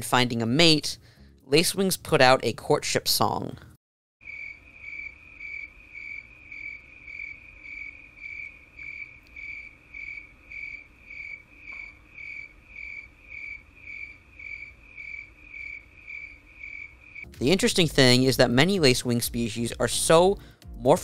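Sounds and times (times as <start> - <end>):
high buzzing insect chirp: 4.2 - 17.3.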